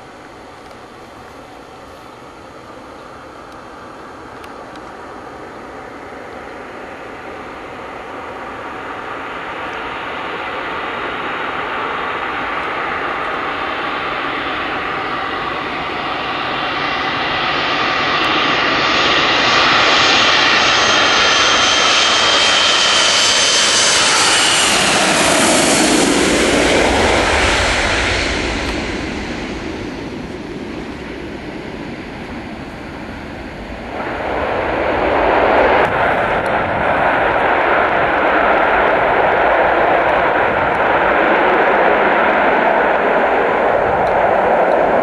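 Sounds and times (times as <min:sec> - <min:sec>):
jet engines whining: 0:00.0 - 0:45.0
low rumble: 0:24.2 - 0:41.4.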